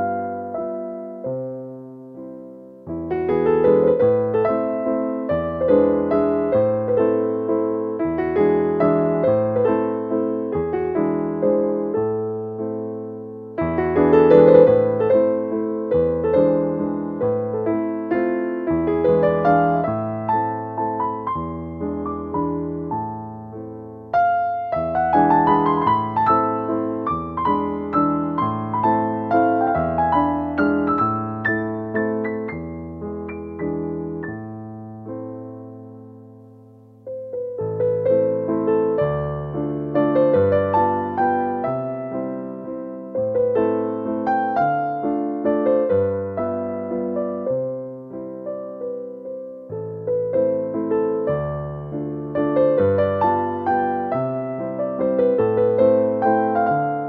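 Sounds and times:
gentle piano melody: 0.0s - 57.0s.

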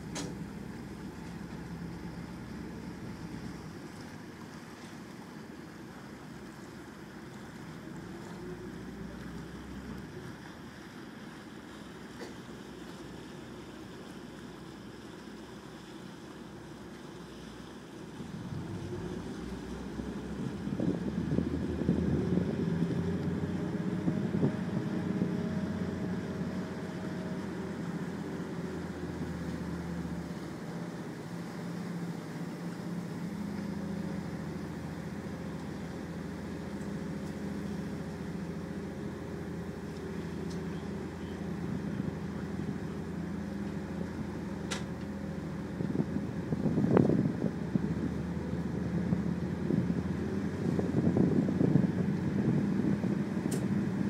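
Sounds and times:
ship engine droning: 0.0s - 54.0s
wind on microphone: 18.3s - 27.8s, 45.5s - 54.0s.

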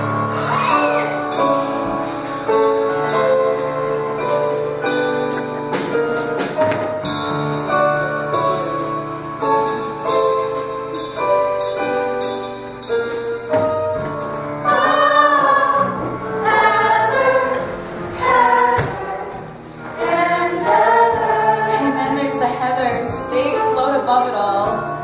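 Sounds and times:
band playing chords: 0.0s - 25.0s
steady drum beat: 13.0s - 25.0s
ensemble of singers singing: 14.6s - 23.8s.

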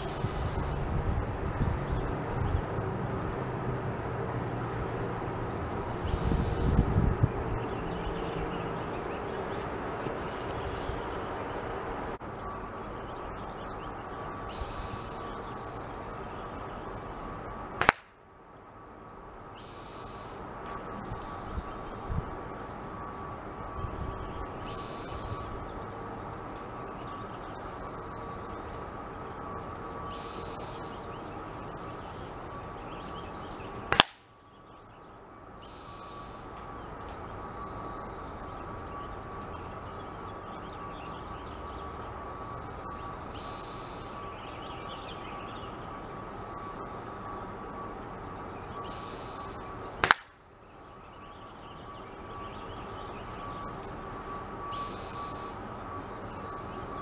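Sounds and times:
air rifle shots: 17.8s - 18.2s, 33.9s - 34.3s, 50.0s - 50.4s.

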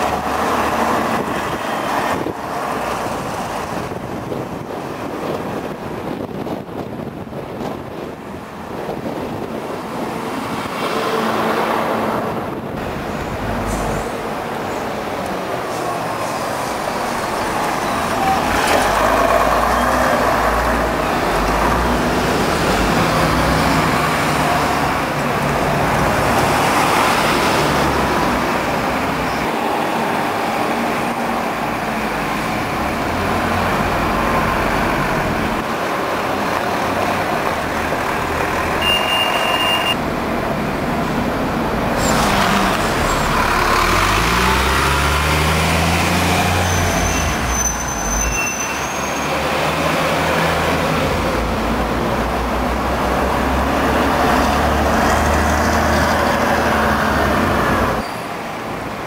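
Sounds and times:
bus diesel engines: 0.0s - 59.0s
street traffic: 0.0s - 59.0s
short high beep: 38.8s - 40.0s.

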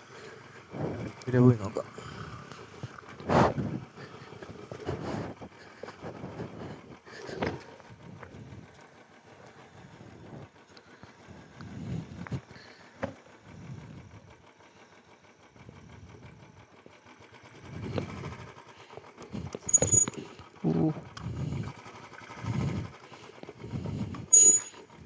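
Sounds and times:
motorcycle engine pulses: 0.0s - 25.0s
short high squeals: 19.7s - 20.2s, 24.3s - 24.9s.

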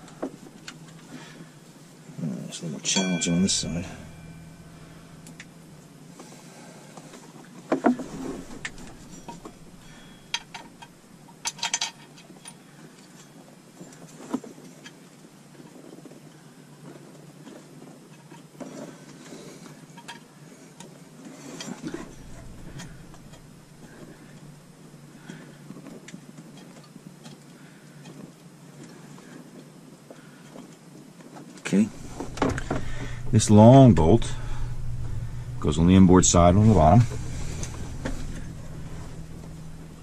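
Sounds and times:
steady low hum: 0.0s - 11.9s, 21.8s - 26.0s, 31.7s - 40.0s.

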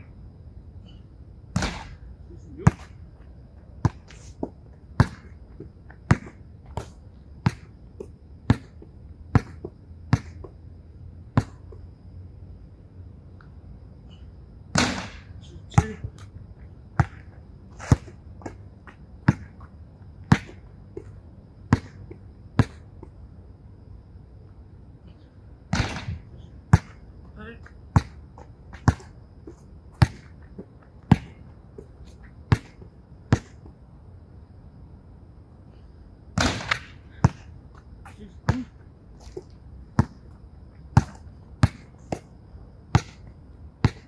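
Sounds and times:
ball hitting backboard and rim: 1.5s - 2.0s, 5.0s - 5.4s, 6.1s - 7.7s, 14.7s - 16.1s, 20.3s - 20.6s, 25.7s - 27.0s, 30.0s - 30.3s, 31.1s - 31.4s, 32.5s - 33.6s, 36.4s - 37.5s, 41.0s - 42.3s, 42.9s - 44.0s
basketball bouncing: 5.0s - 7.7s, 8.5s - 10.6s, 20.3s - 21.1s, 27.9s - 29.1s, 29.9s - 30.4s, 31.1s - 31.9s, 32.5s - 33.7s, 40.0s - 40.3s, 40.9s - 42.3s, 42.9s - 44.0s.

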